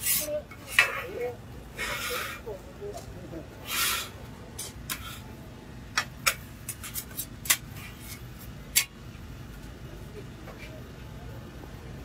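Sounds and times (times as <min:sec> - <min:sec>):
metal spatula scraping griddle: 0:00.0 - 0:02.5
low background hum: 0:00.0 - 0:12.0.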